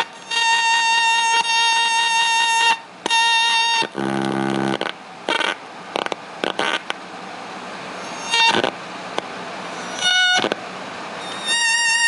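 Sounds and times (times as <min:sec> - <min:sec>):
crunchy noise bursts: 0:00.0 - 0:07.0, 0:08.2 - 0:10.7
distorted electronic keyboard notes: 0:03.8 - 0:06.9.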